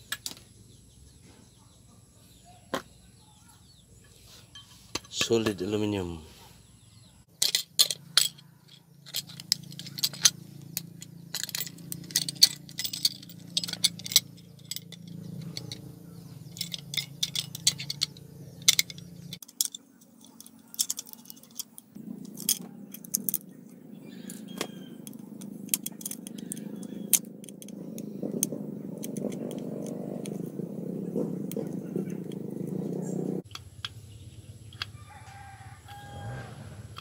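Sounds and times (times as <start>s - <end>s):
metal clicks on aluminium casing: 24.3s - 30.4s.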